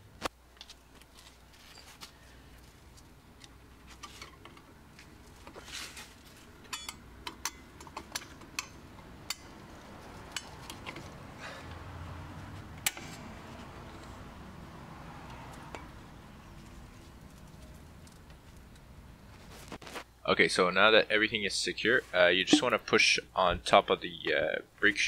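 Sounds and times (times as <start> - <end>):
pliers and spring metallic clicks: 6.7 - 9.5, 12.8 - 13.2.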